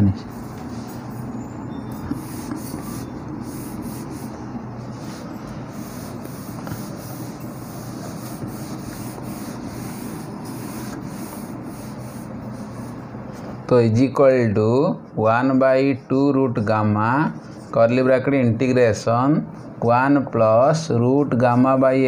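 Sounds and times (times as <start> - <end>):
cloth rubbing whiteboard: 0.2 - 13.6.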